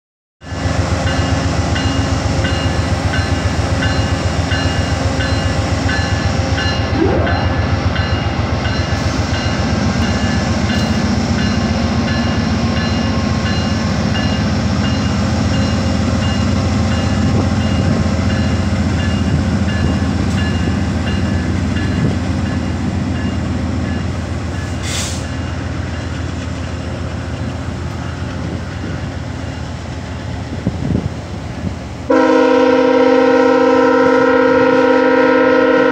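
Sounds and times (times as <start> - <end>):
diesel locomotive engine rumbling: 0.4 - 35.9.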